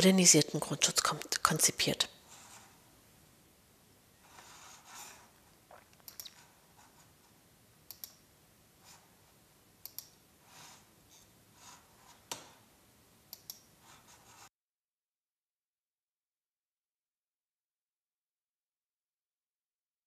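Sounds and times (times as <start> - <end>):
computer mouse clicks: 6.0 - 6.5, 7.8 - 8.2, 9.8 - 10.2, 13.3 - 13.7.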